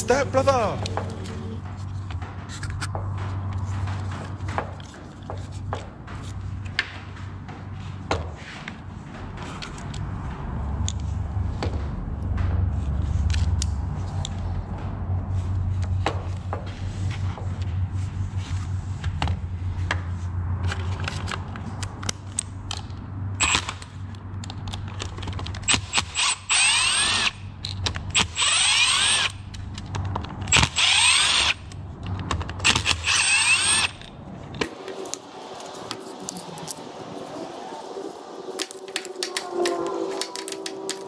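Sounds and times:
cordless drill motor whine: 26.0 - 27.4, 28.2 - 29.4, 30.5 - 31.6, 32.6 - 34.1.

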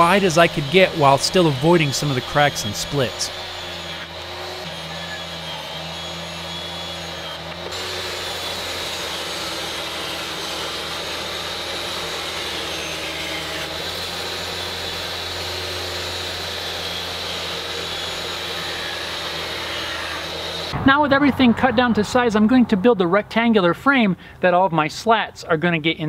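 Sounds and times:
table saw cutting wood: 0.0 - 20.8.

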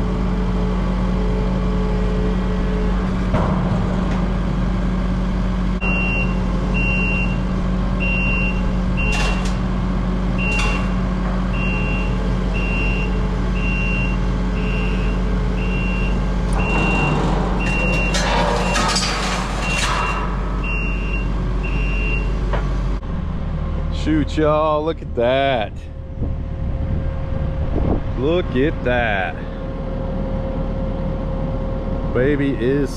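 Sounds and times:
diesel engine running: 0.0 - 32.9
backup alarm beeping: 5.8 - 9.6, 10.4 - 22.5.

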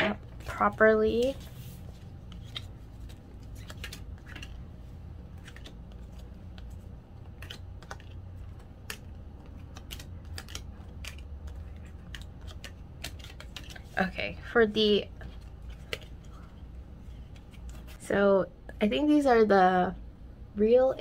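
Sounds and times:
photo cards clicking and tapping: 2.2 - 13.9, 15.2 - 18.0.

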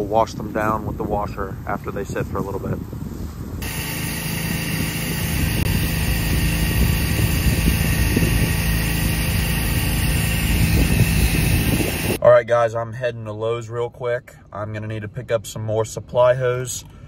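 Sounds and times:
engine running with low hum: 0.0 - 12.2.

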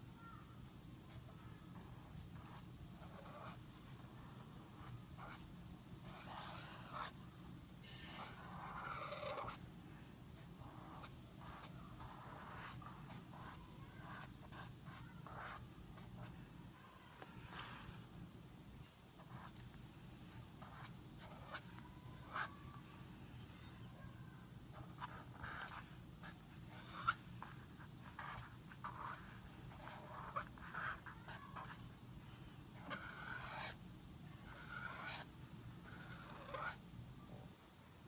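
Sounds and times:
faint low hum: 0.0 - 38.0
marker scratching on paper: 1.1 - 7.2, 7.8 - 9.6, 10.4 - 16.4, 19.2 - 19.7, 20.3 - 22.6, 24.7 - 31.9, 32.8 - 33.8, 34.4 - 36.8.

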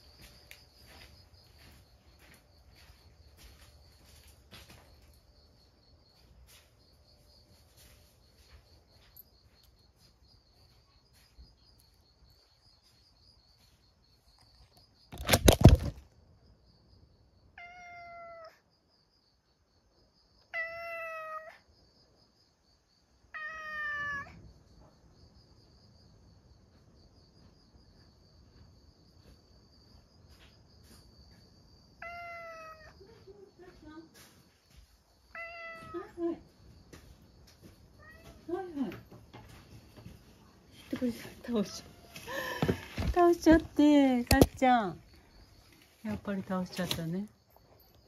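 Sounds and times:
crickets chirring: 0.0 - 48.0
cat meowing: 17.6 - 18.6, 20.5 - 21.6, 23.3 - 24.4, 32.0 - 33.0, 35.3 - 36.2, 38.0 - 38.5.

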